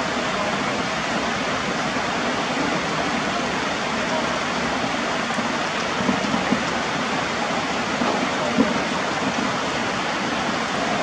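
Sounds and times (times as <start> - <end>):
heavy rain hissing: 0.0 - 11.0.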